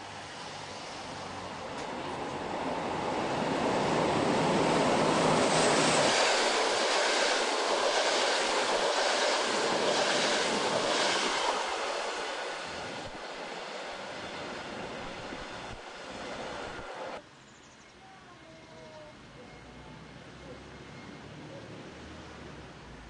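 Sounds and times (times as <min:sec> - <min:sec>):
train passing at speed: 0:00.0 - 0:17.2, 0:19.8 - 0:23.0
wheels rushing on rail: 0:00.0 - 0:17.2.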